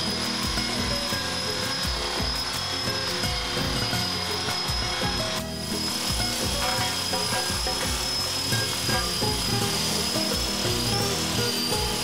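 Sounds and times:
background music: 0:00.0 - 0:12.0
rc helicopter rotor whine: 0:00.0 - 0:12.0.

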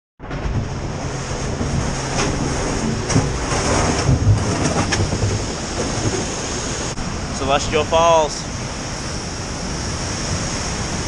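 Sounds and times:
sharp knocks: 0:00.2 - 0:06.3
deep microphone rumble: 0:00.2 - 0:07.4
waterfall roaring: 0:00.2 - 0:11.0.

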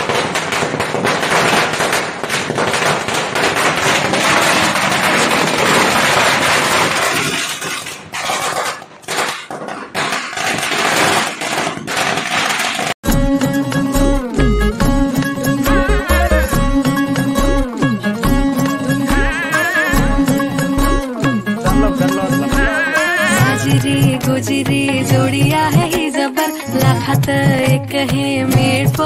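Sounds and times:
firecrackers crackling: 0:00.0 - 0:13.0
music: 0:13.0 - 0:29.0.

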